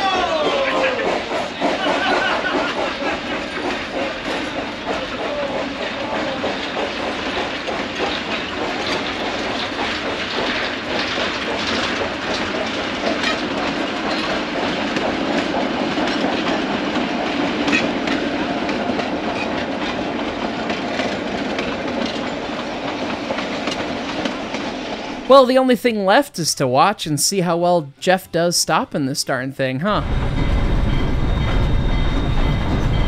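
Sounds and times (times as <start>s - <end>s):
wheels clicking over rail joints: 0.0s - 25.2s
freight cars rolling rumble: 0.0s - 25.4s, 30.0s - 33.0s.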